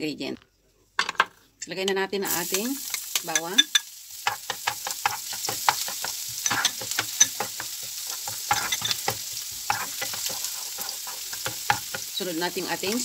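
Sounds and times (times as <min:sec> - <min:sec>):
garlic sizzling in oil: 0:02.2 - 0:13.0
spatula scraping and tapping pan: 0:02.5 - 0:12.2.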